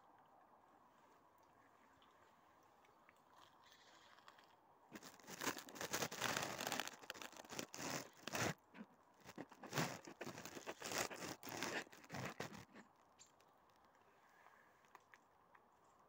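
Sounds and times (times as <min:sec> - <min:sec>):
crunching and rustling at microphone: 0:03.4 - 0:14.0.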